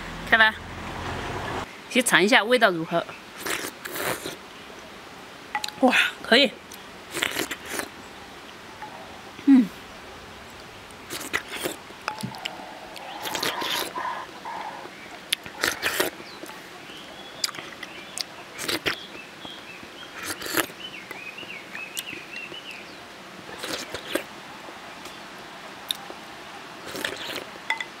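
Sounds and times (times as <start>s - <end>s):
person slurping jelly: 11.1s - 14.9s
bird warbling: 12.1s - 15.0s.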